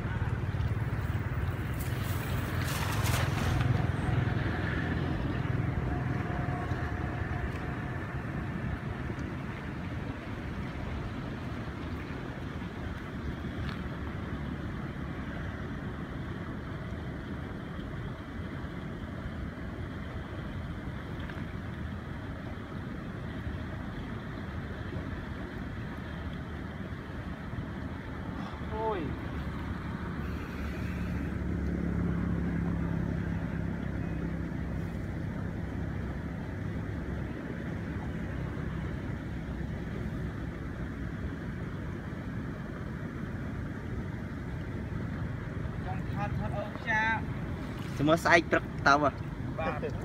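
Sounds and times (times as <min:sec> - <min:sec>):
low motor drone: 0:00.0 - 0:11.2, 0:28.0 - 0:48.0.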